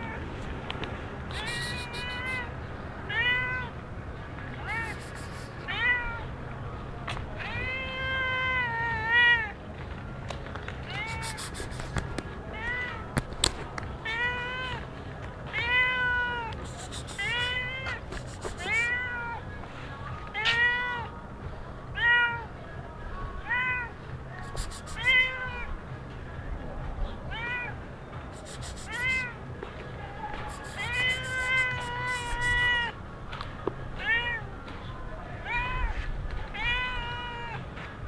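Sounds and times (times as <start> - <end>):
cat meowing: 1.3 - 2.5, 3.1 - 3.7, 4.6 - 6.2, 10.9 - 11.9, 15.6 - 17.9, 18.5 - 19.4, 24.6 - 25.7, 28.5 - 29.3, 30.6 - 32.9.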